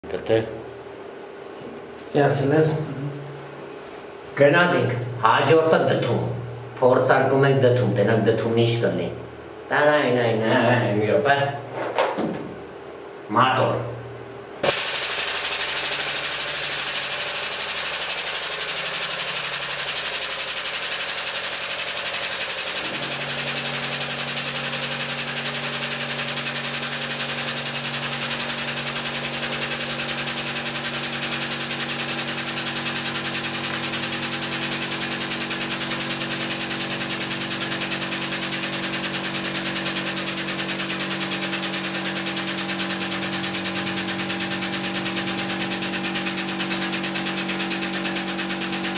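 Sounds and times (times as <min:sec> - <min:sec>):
hydraulic press buzzing: 0:14.6 - 0:48.9.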